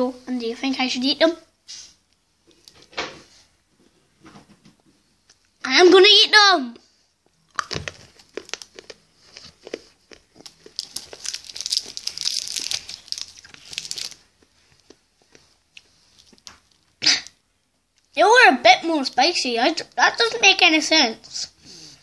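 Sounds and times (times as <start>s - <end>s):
candy crunching and crackling: 7.4s - 17.3s.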